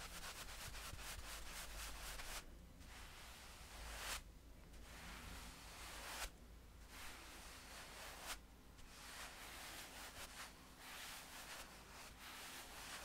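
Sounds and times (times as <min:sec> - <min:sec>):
paintbrush bristles on skin: 0:04.8 - 0:06.3, 0:06.9 - 0:13.0.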